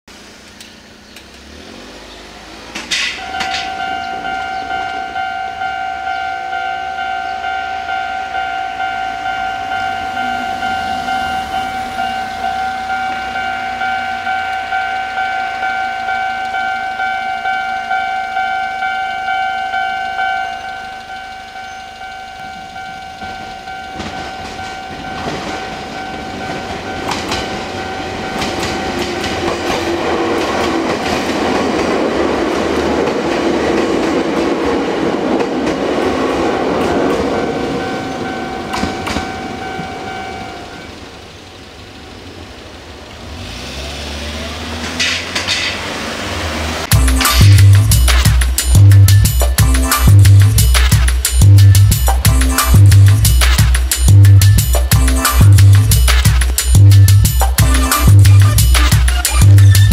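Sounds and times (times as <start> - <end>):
train wheels clacking over rail joints: 2.7 - 6.6, 9.2 - 40.4, 44.8 - 46.0, 46.8 - 58.0
level-crossing alarm ringing: 3.1 - 41.2.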